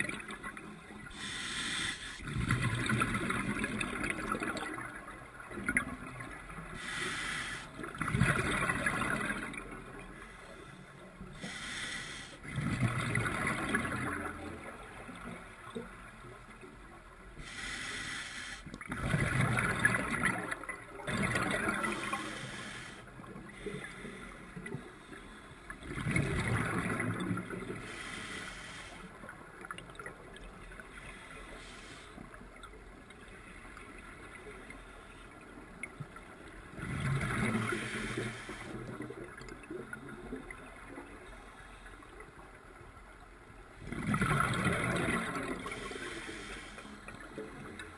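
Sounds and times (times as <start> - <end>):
scuba regulator breathing hiss: 1.1 - 2.2, 6.8 - 7.8, 11.4 - 12.4, 17.4 - 18.7, 21.9 - 24.5, 27.8 - 29.2, 31.0 - 32.2, 37.6 - 39.0, 45.7 - 47.0.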